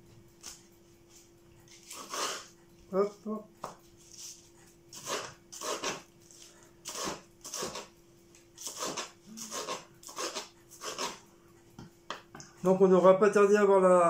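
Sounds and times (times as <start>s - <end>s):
knife chopping on wooden board: 8.6s - 11.2s.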